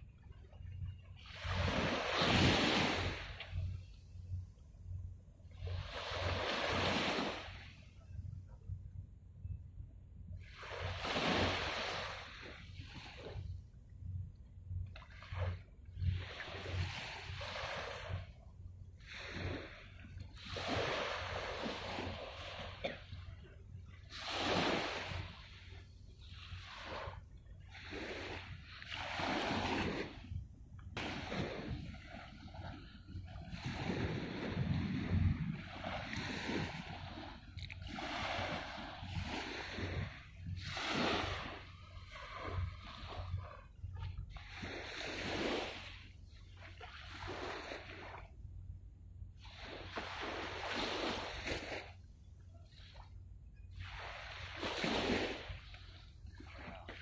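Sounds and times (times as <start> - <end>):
wind rumbling on microphone: 0.0 - 57.0
waves splashing on shore: 1.2 - 3.8, 5.6 - 7.8, 10.4 - 13.4, 19.0 - 23.2, 24.0 - 27.2, 27.8 - 30.3, 30.9 - 43.6, 44.3 - 48.2, 49.4 - 52.0, 53.7 - 57.0
low rumble: 30.1 - 37.6.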